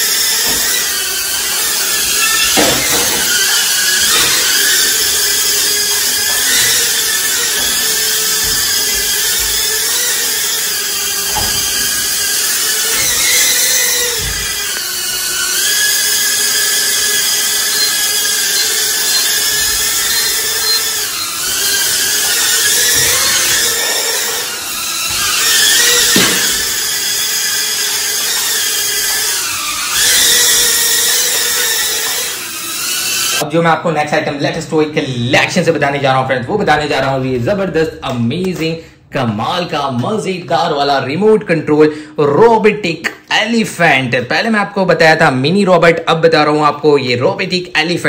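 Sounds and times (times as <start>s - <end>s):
toy drone propellers whining: 0.0s - 33.4s.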